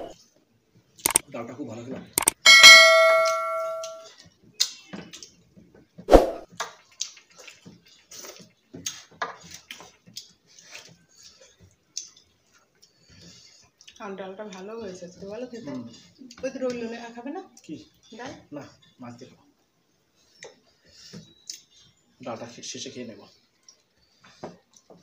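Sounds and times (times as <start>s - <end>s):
clink against plate: 2.4s - 4.0s
hands mixing rice on plate: 6.6s - 14.0s
chewing: 6.6s - 14.6s, 23.4s - 25.0s.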